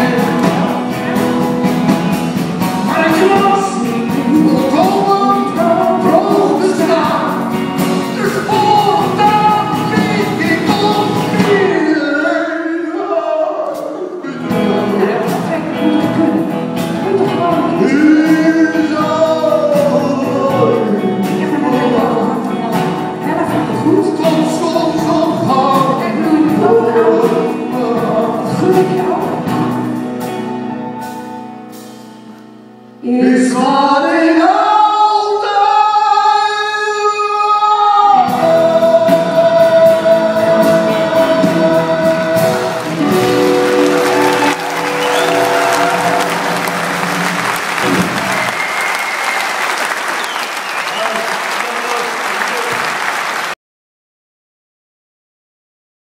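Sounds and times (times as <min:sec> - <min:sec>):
man and woman singing duet: 0:00.0 - 0:01.5, 0:02.8 - 0:29.6, 0:33.0 - 0:46.7
small band playing: 0:00.0 - 0:53.6.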